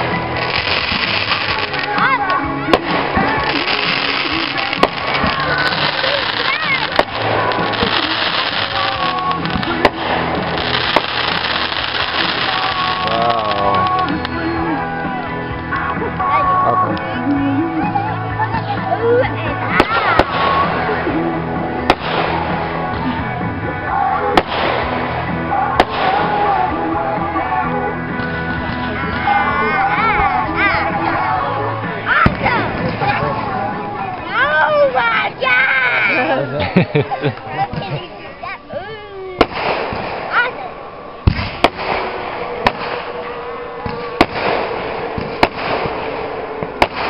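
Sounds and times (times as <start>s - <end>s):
fireworks bangs: 0.0s - 15.1s, 19.6s - 23.3s, 24.2s - 27.2s, 32.1s - 34.9s, 39.4s - 47.0s
music playing: 0.0s - 47.0s.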